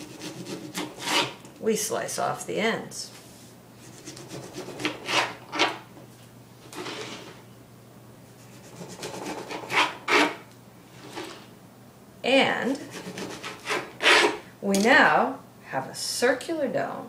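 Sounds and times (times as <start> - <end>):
knife sawing through orange: 0.0 - 1.4, 3.8 - 5.4, 8.5 - 10.4, 12.8 - 14.4.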